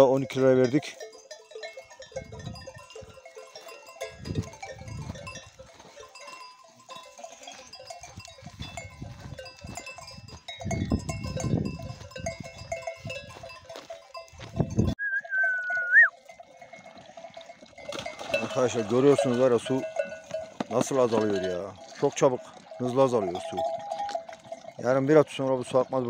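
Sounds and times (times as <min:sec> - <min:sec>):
sheep and goat bells clinking: 0:00.0 - 0:26.0
wind rumbling on microphone: 0:02.2 - 0:02.8, 0:04.1 - 0:05.5, 0:08.1 - 0:13.5, 0:14.3 - 0:15.0.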